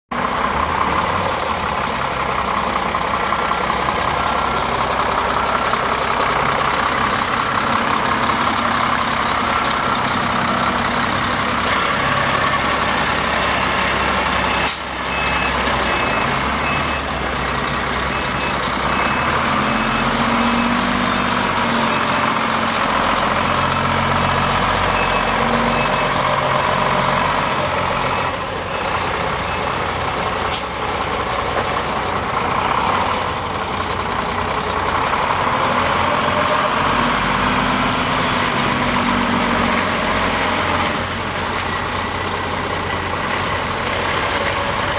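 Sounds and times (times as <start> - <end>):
diesel truck engine running: 0.1 - 44.9
faint repeating beep: 14.4 - 17.1, 24.9 - 26.2.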